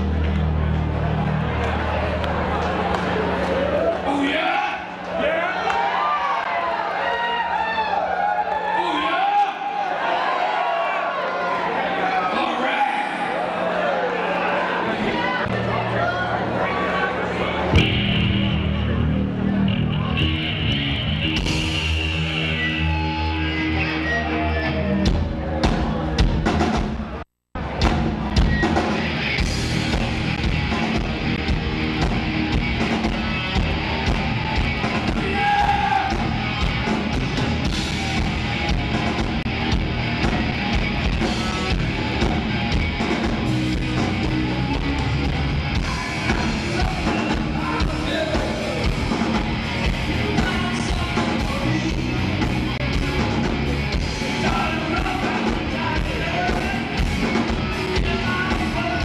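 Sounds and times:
bass guitar: 0.0 - 4.1, 15.4 - 59.0
drum kit: 17.7 - 23.5, 24.9 - 59.0
electric guitars: 28.3 - 59.0.

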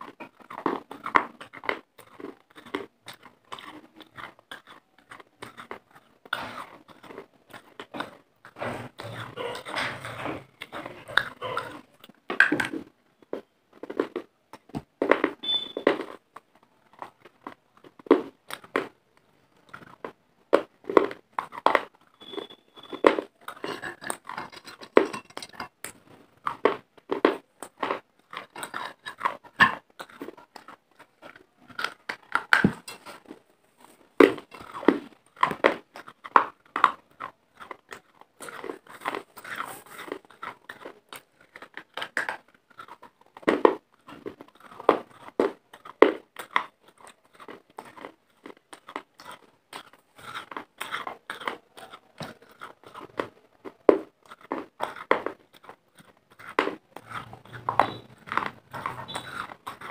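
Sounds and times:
clay being chewed with crunches: 0.0 - 59.9.

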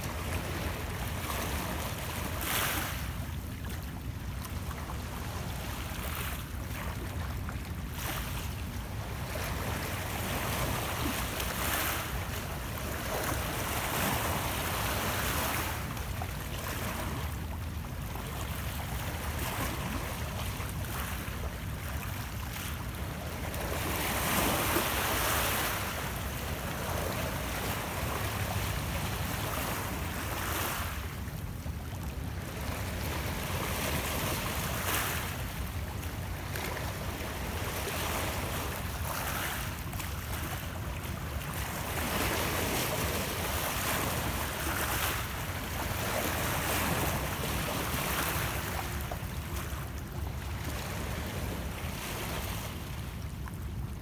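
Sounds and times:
waves lapping against rocks: 18.3 - 53.8.

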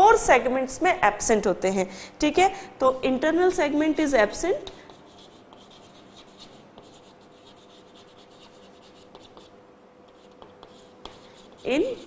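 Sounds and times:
chalk scratching on blackboard: 4.6 - 12.0.

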